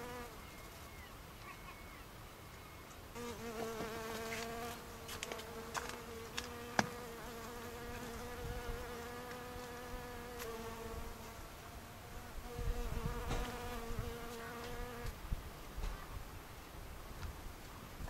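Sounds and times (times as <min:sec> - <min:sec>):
bee buzzing in flight: 0:00.0 - 0:00.4, 0:03.2 - 0:15.2.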